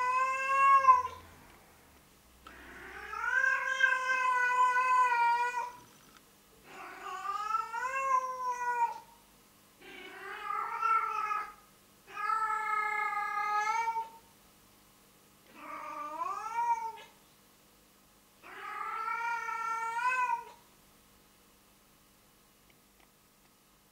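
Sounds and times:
cat yowling: 0.0 - 1.2, 2.5 - 5.8, 6.6 - 9.0, 9.8 - 14.2, 15.5 - 17.1, 18.4 - 20.6.

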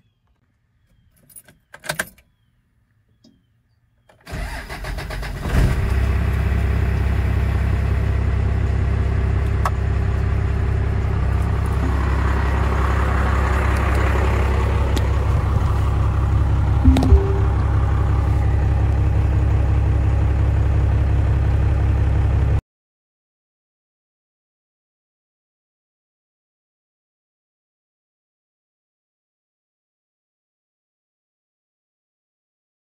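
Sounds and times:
diesel engine idling: 6.7 - 16.8.

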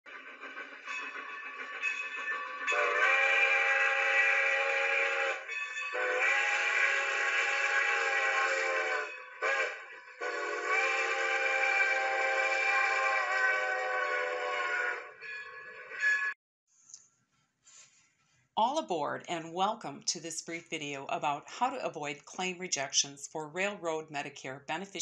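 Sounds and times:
steam locomotive whistle: 0.2 - 16.3.

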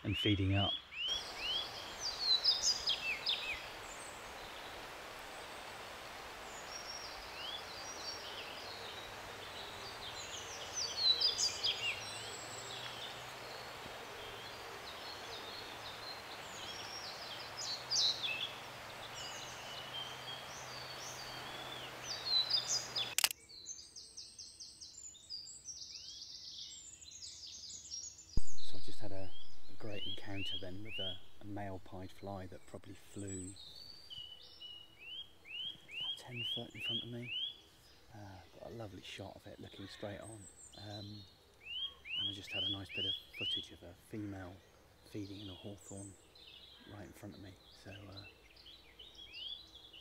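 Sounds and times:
steady hiss: 0.0 - 23.3, 28.4 - 41.3
songbirds singing: 0.0 - 50.0.

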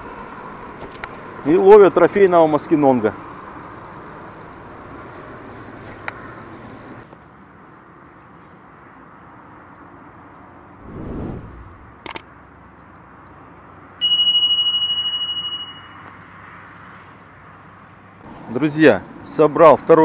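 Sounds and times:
outdoor background noise: 0.0 - 20.0
short whoosh: 10.8 - 12.0
bright bell ding: 14.0 - 16.1.

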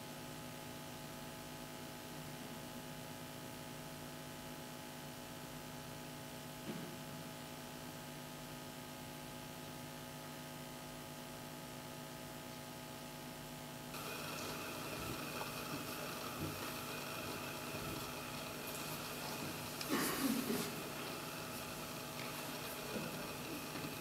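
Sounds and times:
electrical hum with hiss: 0.0 - 24.0
noisier sound: 13.9 - 24.0.

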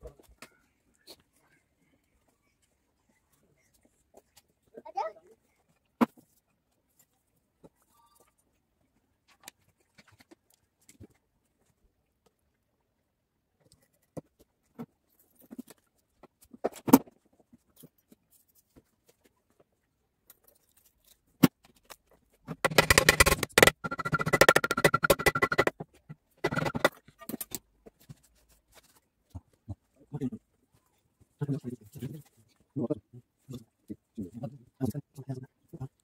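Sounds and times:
metal parts clicking and knocking: 21.8 - 25.8, 26.4 - 27.6.

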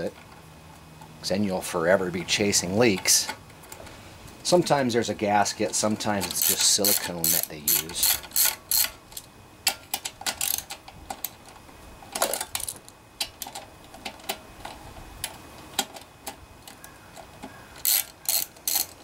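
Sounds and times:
ratchet clicking: 6.1 - 11.4, 17.5 - 19.0.

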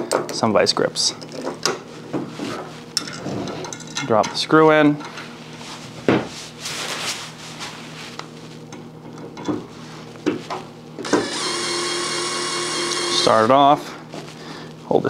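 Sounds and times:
cordless drill driving screw: 11.0 - 13.4.

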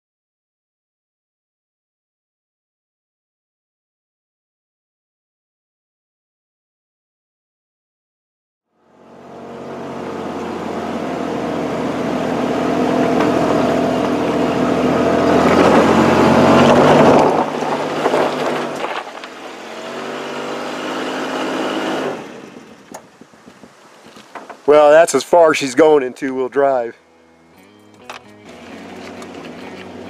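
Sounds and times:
vehicle engine labouring: 8.8 - 27.0, 27.6 - 30.0.

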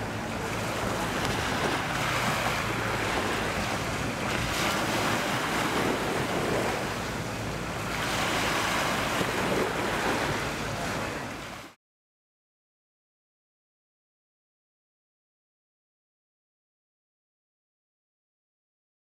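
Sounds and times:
wind on microphone: 0.0 - 11.3
sea surf washing in: 0.0 - 11.8.

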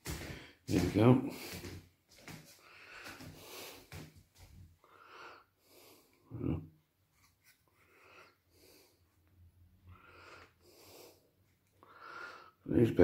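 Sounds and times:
person breathing heavily: 0.0 - 4.2, 4.8 - 6.6, 7.7 - 9.2, 9.8 - 12.6.

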